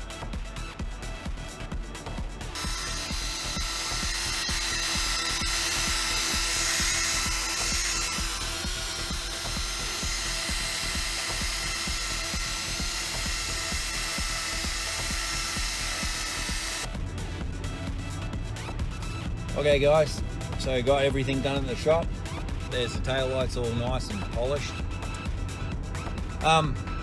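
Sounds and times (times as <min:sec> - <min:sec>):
background music: 0:00.0 - 0:27.0
polisher motor whine: 0:02.5 - 0:16.9.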